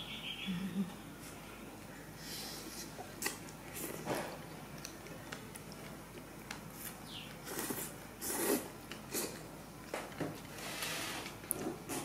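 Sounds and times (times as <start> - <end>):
slurping and chewing noodles: 4.8 - 9.5.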